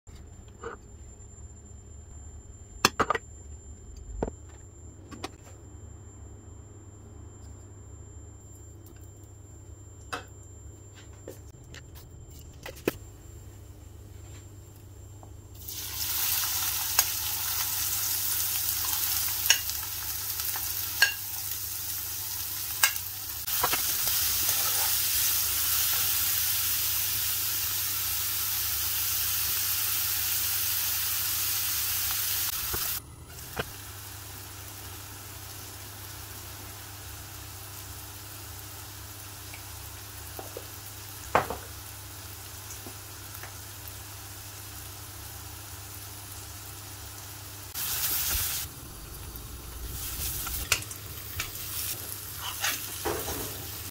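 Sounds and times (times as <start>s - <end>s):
vegetables sizzling in hot oil: 15.6s - 53.9s
metal spoon clinking on pan: 21.0s - 21.2s, 22.8s - 23.1s.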